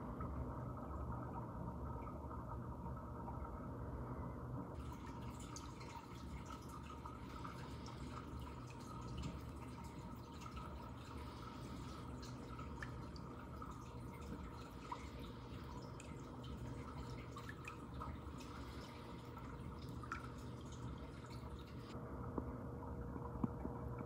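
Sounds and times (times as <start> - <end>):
water trickling and dripping: 0.0 - 3.7, 4.8 - 22.0.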